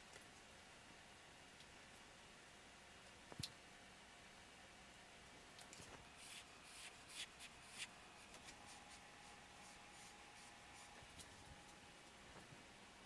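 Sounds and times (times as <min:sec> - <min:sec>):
soft scraping strokes: 0:05.7 - 0:12.5.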